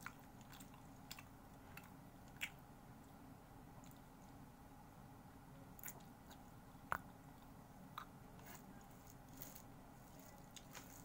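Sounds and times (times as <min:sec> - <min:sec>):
chewing: 0:00.0 - 0:02.6, 0:08.0 - 0:11.0
steady low hum: 0:00.0 - 0:11.0.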